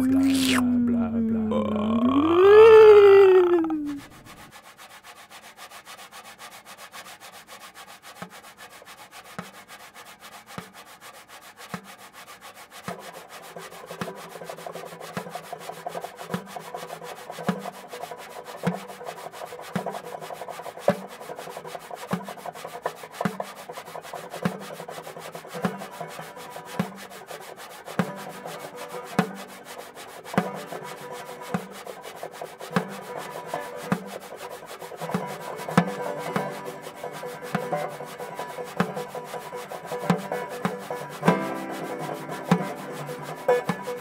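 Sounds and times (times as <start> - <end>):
scratchy rubbing texture: 0.0 - 0.7, 3.3 - 14.6
sustained tones: 0.0 - 4.1
falling gliding tone: 0.0 - 4.4.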